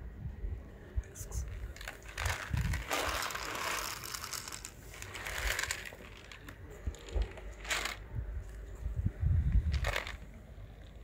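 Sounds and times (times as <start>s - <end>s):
cats crunching dry food: 1.4s - 8.7s, 9.5s - 11.0s
kibble pouring onto paving: 1.6s - 8.0s, 9.6s - 10.3s.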